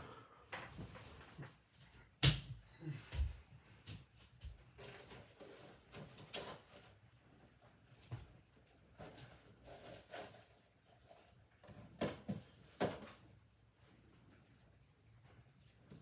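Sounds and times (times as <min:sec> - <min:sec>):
household knocks and thumps: 0:11.7 - 0:13.2.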